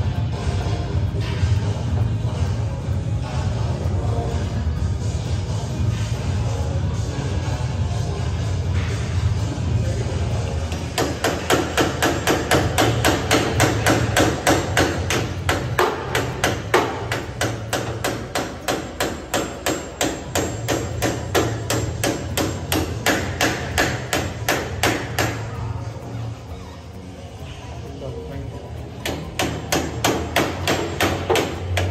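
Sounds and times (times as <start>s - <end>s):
hammer striking metal: 10.7s - 25.5s, 29.0s - 31.9s.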